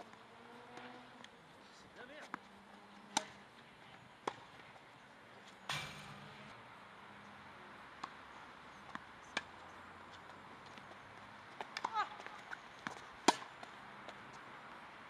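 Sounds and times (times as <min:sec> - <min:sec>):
tennis ball hits: 0:03.1 - 0:03.4, 0:04.2 - 0:04.6, 0:05.7 - 0:06.6, 0:12.8 - 0:13.7.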